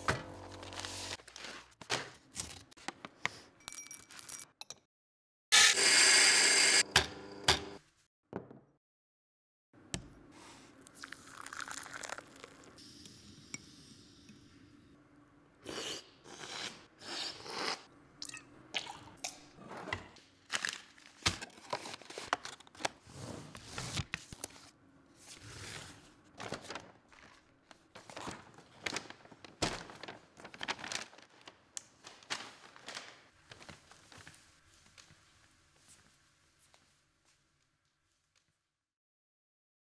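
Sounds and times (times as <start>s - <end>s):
paper and cardboard crinkling: 0.4s - 2.9s, 20.5s - 23.0s, 23.6s - 35.3s.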